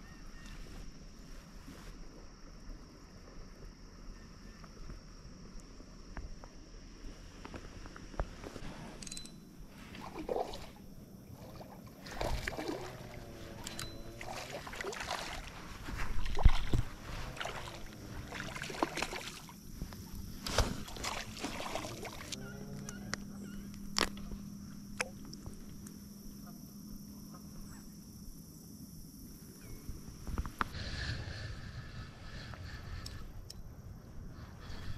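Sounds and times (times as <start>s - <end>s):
fish splashing in water: 11.4s - 13.4s, 14.2s - 19.6s, 20.4s - 22.4s
bird calls bending in pitch: 22.4s - 23.8s.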